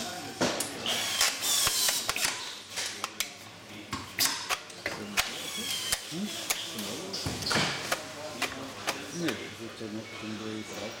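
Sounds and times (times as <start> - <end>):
tools clicking and knocking: 0.6 - 3.3
power screwdriver whirring: 0.8 - 2.3, 5.2 - 6.7.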